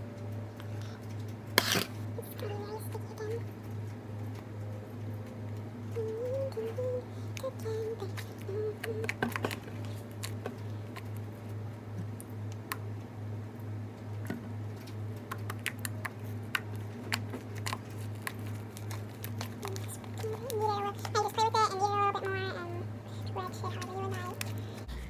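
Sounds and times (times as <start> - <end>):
low pulsing hum: 0.0 - 25.0
slime clicking and popping: 15.2 - 21.3.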